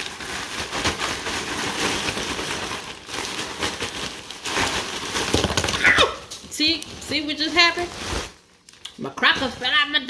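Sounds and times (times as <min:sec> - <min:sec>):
crackers spilling out: 0:00.0 - 0:06.5
crackers rattling in a plastic bag: 0:00.0 - 0:09.8
plastic bag crinkling: 0:00.0 - 0:10.0.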